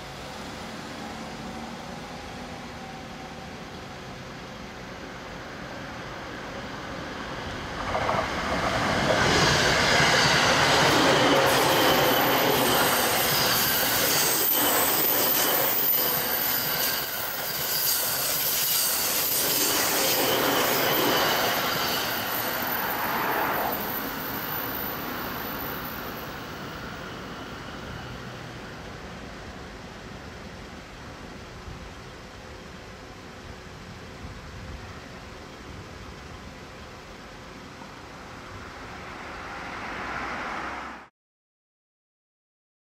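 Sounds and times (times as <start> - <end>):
train wheels rumbling on rails: 4.7 - 41.0
high-pitched ring: 10.4 - 27.6.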